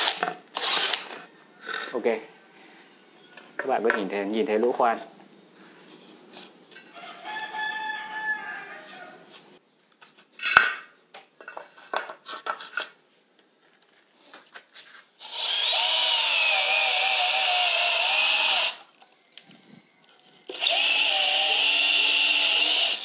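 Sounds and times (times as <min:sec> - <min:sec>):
cordless drill boring into wood: 0:00.0 - 0:01.2, 0:15.2 - 0:18.9, 0:20.5 - 0:23.0.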